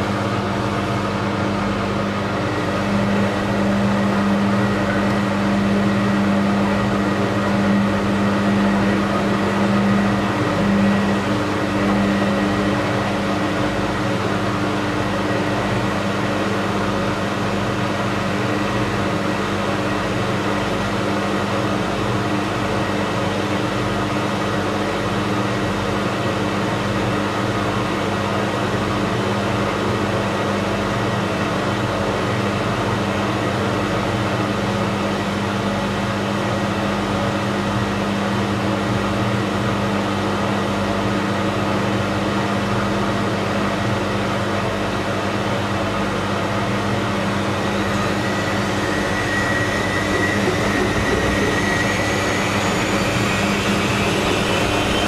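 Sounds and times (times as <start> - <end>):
washing machine spinning: 0.0 - 23.5, 45.0 - 55.0.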